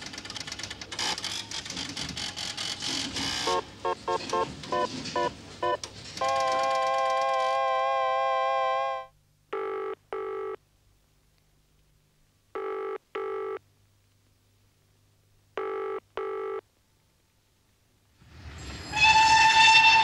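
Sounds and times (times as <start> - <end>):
telephone ringing: 3.4 - 10.6, 12.6 - 13.6, 15.6 - 16.6.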